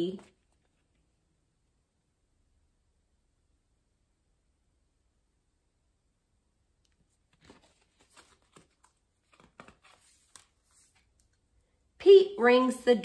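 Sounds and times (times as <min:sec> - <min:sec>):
book pages turning: 0:06.9 - 0:11.4.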